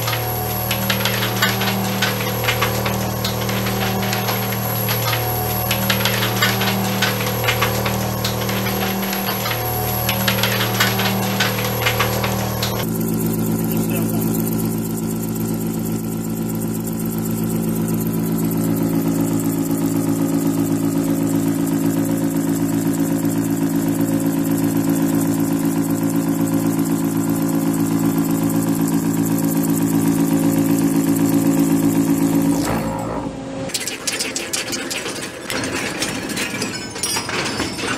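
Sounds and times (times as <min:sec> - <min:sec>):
milling cutter cutting steel: 0:00.0 - 0:12.8, 0:33.7 - 0:37.9.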